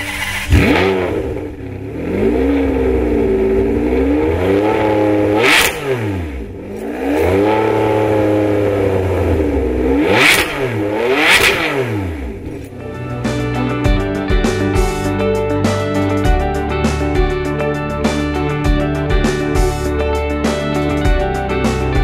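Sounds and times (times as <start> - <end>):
sports car engine revving: 0.0 - 14.8.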